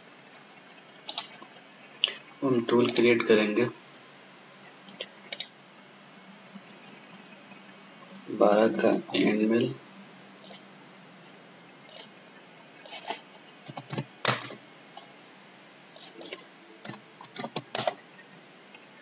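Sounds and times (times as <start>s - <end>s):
faint steady hiss: 0.0s - 19.0s
mouse clicking: 1.1s - 1.4s, 2.8s - 3.1s, 4.9s - 5.5s
computer keyboard typing: 2.8s - 3.1s, 16.0s - 18.0s.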